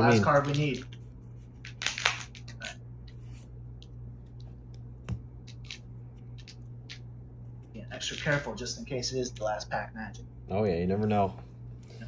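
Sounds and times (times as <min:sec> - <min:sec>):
cards rustling: 0:00.0 - 0:07.1, 0:07.9 - 0:08.6
steady low hum: 0:00.0 - 0:12.0.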